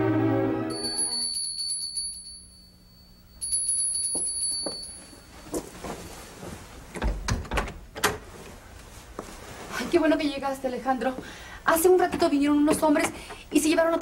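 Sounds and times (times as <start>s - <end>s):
doorbell trill: 0.7s - 5.3s
footsteps: 4.1s - 7.3s, 8.2s - 10.2s
knocks and thumps: 6.9s - 8.3s.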